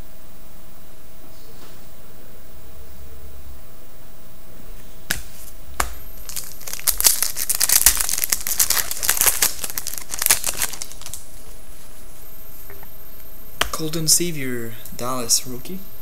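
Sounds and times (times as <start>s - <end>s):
foil wrapper crinkling: 6.2s - 11.4s.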